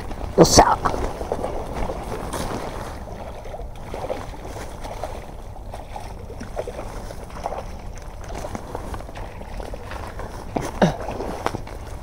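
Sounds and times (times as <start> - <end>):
rustling of brush and clothing: 0.0 - 5.8.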